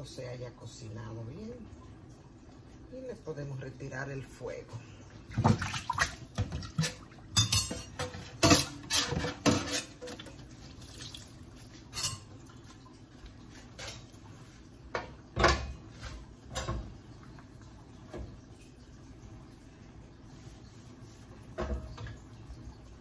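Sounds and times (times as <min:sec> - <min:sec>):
metal cookware clattering: 0:06.4 - 0:10.4, 0:11.9 - 0:12.4.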